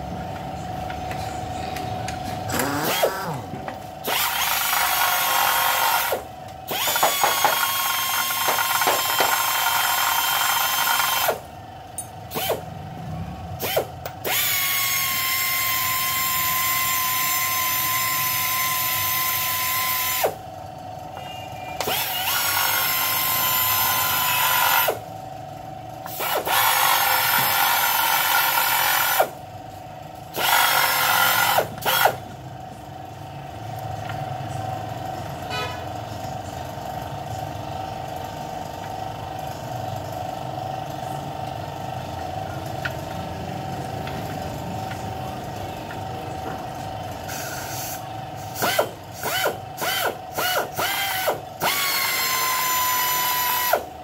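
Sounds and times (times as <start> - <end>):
power wrench whining: 2.4 - 12.7, 13.6 - 20.5, 21.8 - 25.1, 26.0 - 29.4, 30.3 - 32.3, 47.2 - 54.0.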